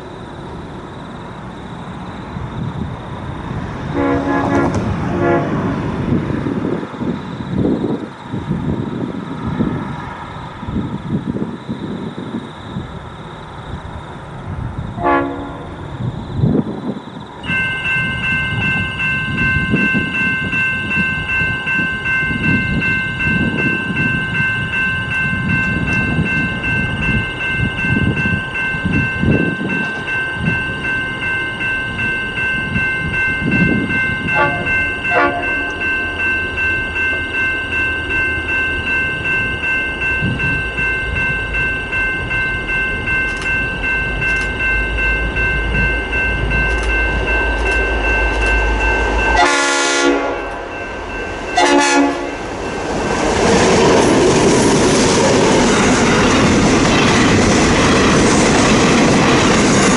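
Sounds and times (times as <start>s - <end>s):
freight train rumble: 0.0s - 59.9s
wind buffeting microphone: 2.2s - 37.4s, 38.4s - 59.9s
high chord of tones: 17.4s - 54.6s.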